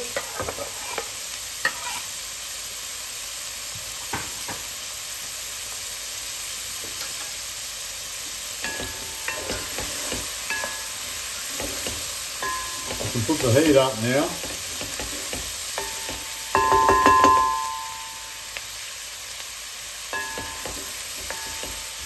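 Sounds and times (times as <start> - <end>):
vegetables sizzling in a pot: 0.0 - 22.0
spoon knocking and scraping pot: 0.1 - 1.1, 8.6 - 18.2, 20.1 - 22.0.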